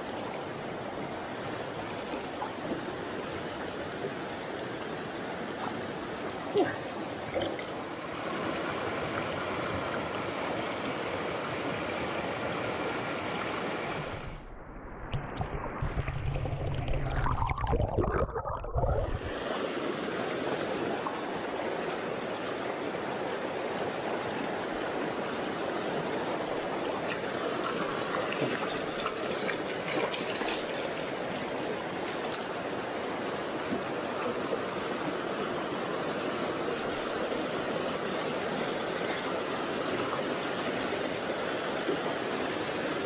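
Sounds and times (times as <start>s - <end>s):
mountain stream rushing over rocks: 0.0s - 14.5s, 18.8s - 43.0s
underwater gurgling rumble: 14.4s - 19.4s.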